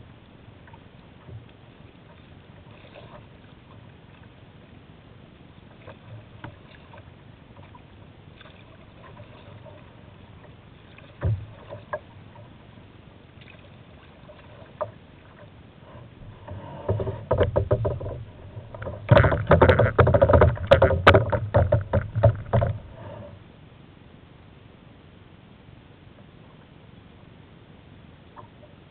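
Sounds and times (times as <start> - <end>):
knocking and splashing on hull: 8.4 - 12.5, 16.2 - 23.1
water washing: 13.4 - 23.2.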